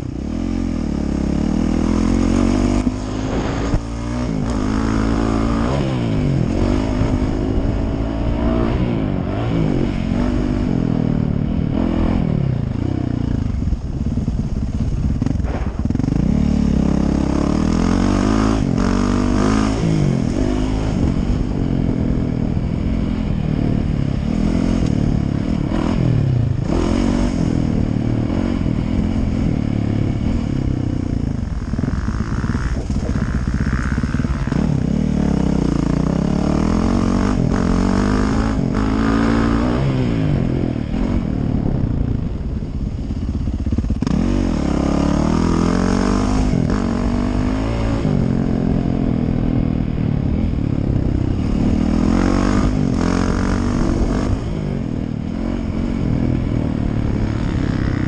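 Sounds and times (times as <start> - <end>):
motocross bike engine revving: 0.0 - 58.0
wind rushing over microphone: 0.0 - 58.0.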